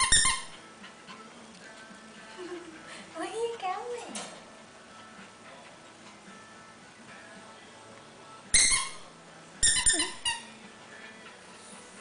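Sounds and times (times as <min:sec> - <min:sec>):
puppy yipping: 0:08.6 - 0:10.5.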